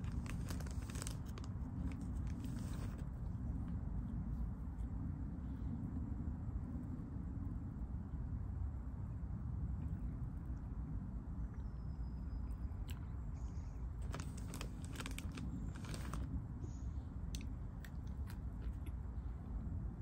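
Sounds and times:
person crunching dry snack: 0.0 - 3.0, 14.0 - 16.3
plastic bag rustling: 0.0 - 3.0, 14.0 - 16.3
steady low rumble: 0.0 - 20.0.

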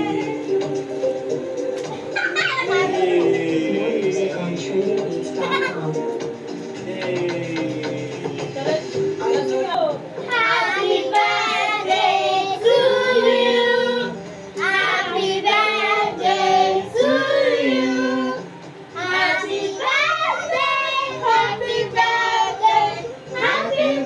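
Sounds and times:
high child-like voices singing: 0.0 - 0.9, 2.0 - 3.8, 10.2 - 24.0.

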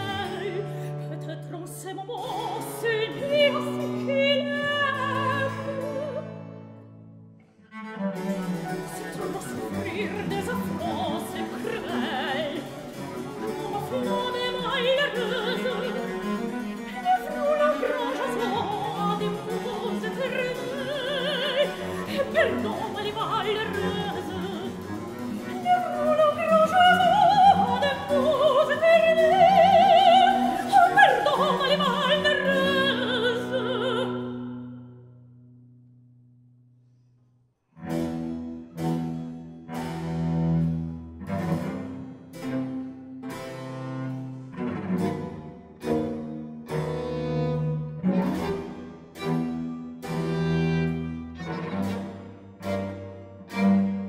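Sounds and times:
soprano singing with vibrato: 0.0 - 6.3, 8.7 - 34.8.

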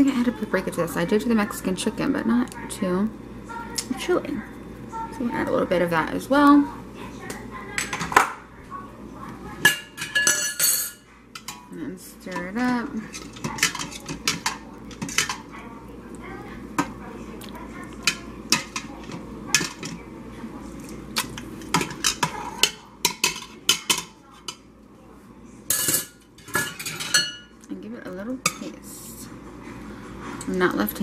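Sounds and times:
metal utensils scraping pot: 9.6 - 15.5, 21.2 - 24.6.

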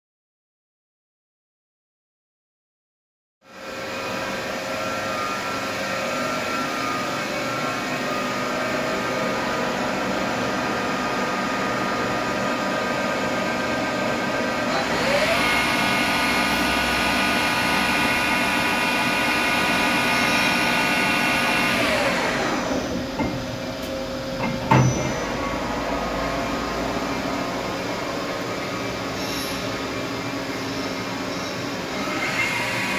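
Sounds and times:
lathe machine hum: 3.5 - 32.9
machine clunk: 23.0 - 25.7.

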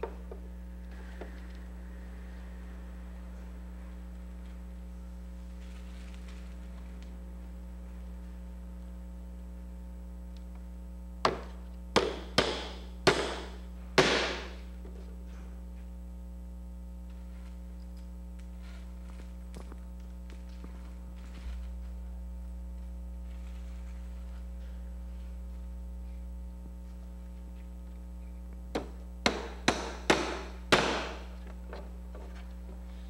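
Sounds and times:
electrical mains hum: 0.0 - 33.0
hammer knocking on wood: 11.2 - 14.5, 28.7 - 31.3.

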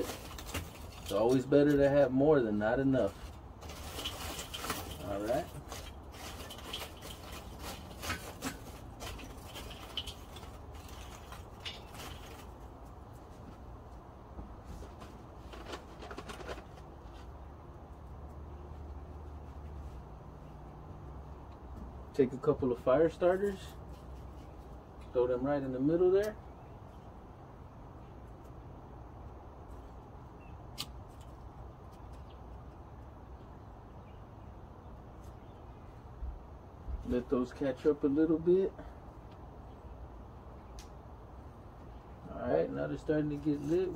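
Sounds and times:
outdoor background noise: 0.0 - 43.9
charcoal clinking in metal bowl: 3.6 - 12.5.

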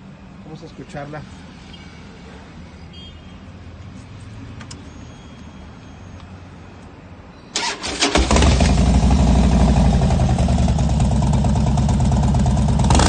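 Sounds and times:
motorcycle engine cranking: 7.6 - 9.0
motorcycle engine running loudly: 8.3 - 13.0.

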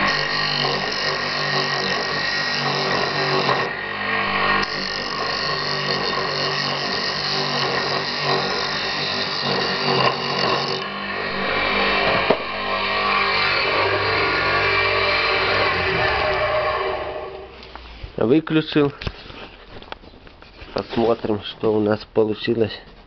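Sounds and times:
wood lathe motor humming: 0.0 - 17.8.

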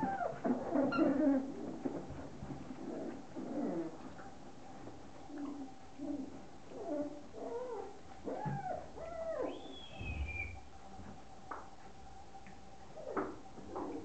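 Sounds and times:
puppies whining and yelping: 0.0 - 1.6, 5.3 - 10.6.

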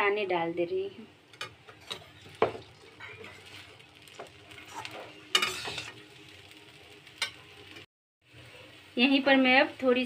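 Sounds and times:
faint sizzle: 0.0 - 10.0
metal spatula scraping steel pan: 1.8 - 3.7, 4.5 - 6.0.

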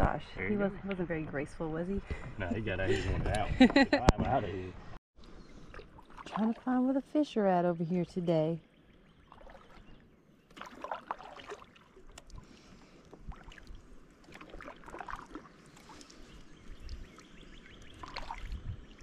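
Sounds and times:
paddle splashing in water: 5.6 - 6.8, 9.2 - 18.6
water dripping: 10.5 - 18.6.

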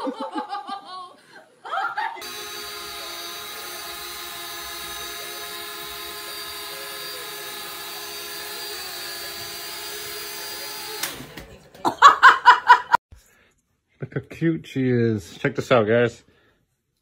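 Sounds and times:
toy drone propellers buzzing: 2.2 - 11.3.

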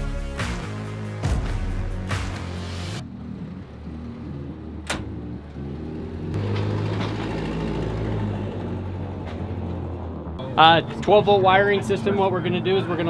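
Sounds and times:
door latching click: 4.8 - 5.2.

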